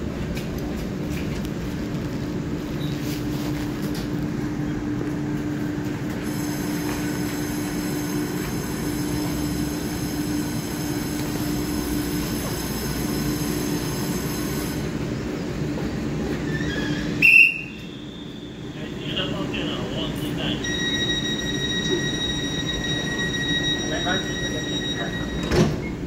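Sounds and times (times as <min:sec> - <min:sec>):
train equipment humming: 0:00.0 - 0:26.0
high-pitched whine: 0:17.5 - 0:25.7.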